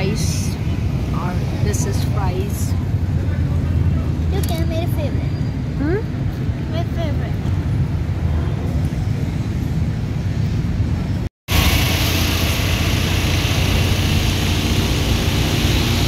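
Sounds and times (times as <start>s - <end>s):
low background rumble: 0.0s - 16.0s
vehicle engine and road noise: 0.0s - 16.0s
wind hiss: 10.1s - 16.0s.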